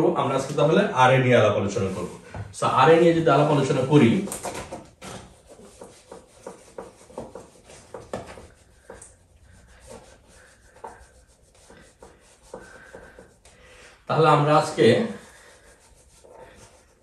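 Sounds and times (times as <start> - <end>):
eraser rubbing on whiteboard: 3.6 - 17.0.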